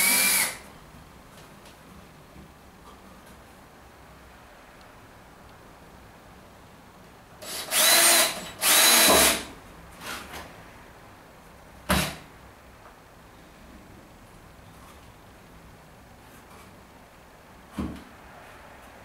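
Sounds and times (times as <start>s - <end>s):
drill whirring: 0.0s - 0.6s, 7.4s - 9.5s.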